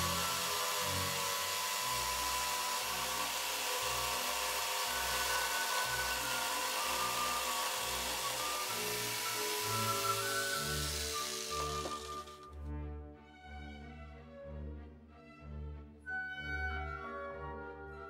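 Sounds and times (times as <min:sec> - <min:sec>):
jigsaw cutting ceramic tile: 0:00.0 - 0:12.5.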